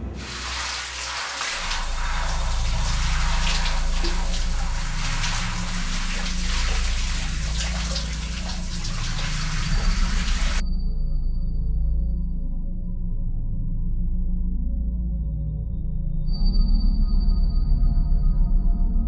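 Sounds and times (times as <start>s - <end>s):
low steady hum: 0.0s - 10.6s
shower spray hissing: 0.0s - 10.6s.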